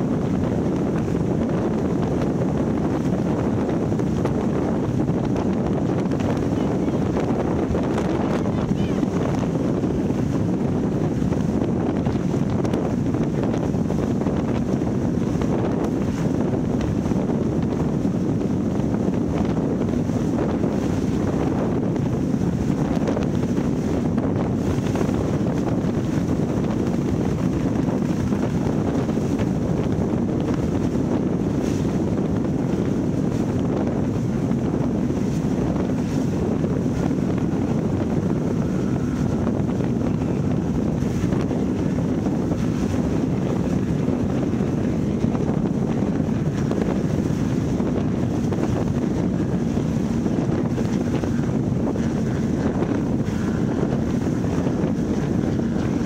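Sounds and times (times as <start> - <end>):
boat engines: 0.0 - 56.0
hull spray: 0.0 - 56.0
wind buffeting microphone: 0.0 - 56.0.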